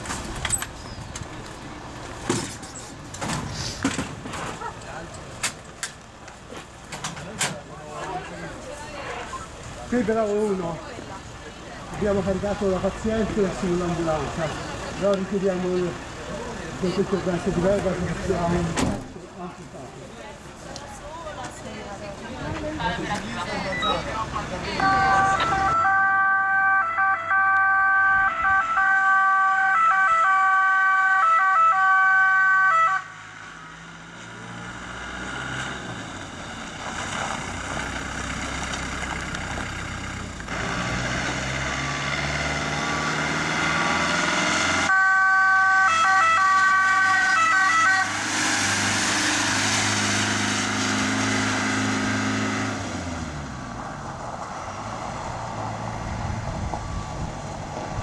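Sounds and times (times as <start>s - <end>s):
emergency vehicle siren: 24.8s - 33.5s, 44.8s - 48.9s
engine accelerating through gears: 33.2s - 44.9s, 48.0s - 58.0s.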